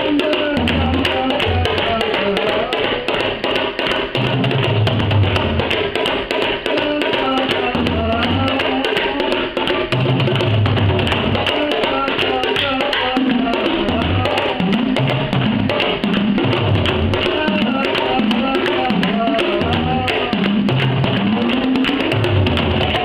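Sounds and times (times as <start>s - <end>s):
frame drums played with tippers: 0.0s - 23.0s.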